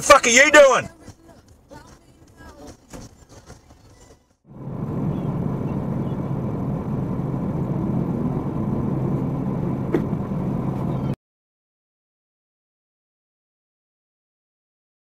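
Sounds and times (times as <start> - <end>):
vehicle engine idling: 4.5 - 11.2.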